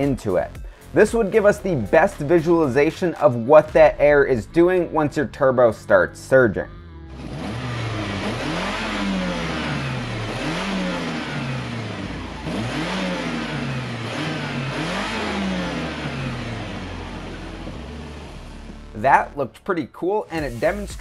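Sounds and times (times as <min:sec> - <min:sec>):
car engine revving: 0:06.3 - 0:19.4
turbo compressor surging: 0:06.9 - 0:19.4, 0:20.4 - 0:21.0.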